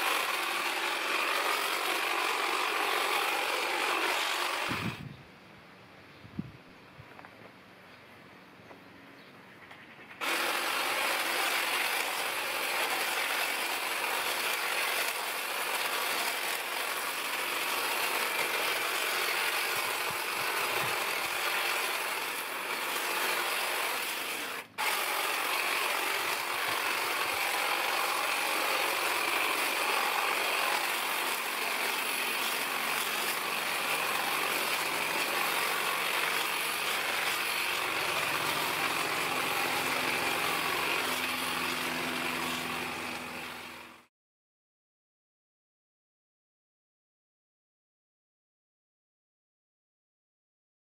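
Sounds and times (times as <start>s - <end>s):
hedge trimmer cutting: 0.0s - 5.1s, 10.2s - 44.1s.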